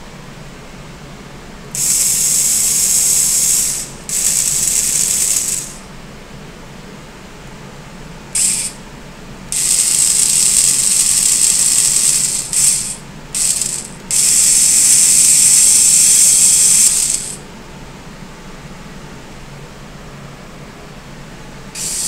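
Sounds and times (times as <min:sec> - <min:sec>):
robot arm gear whir: 0:01.8 - 0:05.8, 0:08.4 - 0:08.8, 0:09.5 - 0:17.4, 0:21.8 - 0:22.0.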